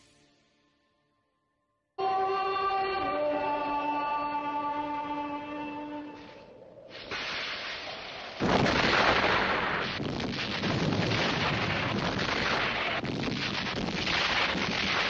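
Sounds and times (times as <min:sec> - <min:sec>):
deep rumbling blast: 0:06.9 - 0:15.0.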